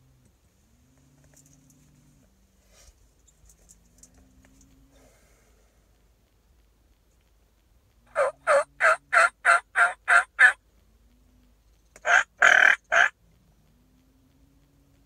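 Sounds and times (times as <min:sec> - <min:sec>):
turkey call yelps: 0:08.1 - 0:10.6, 0:12.0 - 0:13.2.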